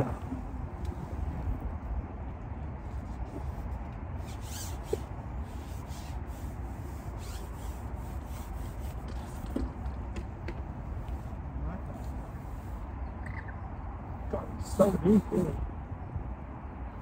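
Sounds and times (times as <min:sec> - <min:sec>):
fishing pole rubbing and scraping: 0:02.9 - 0:09.6.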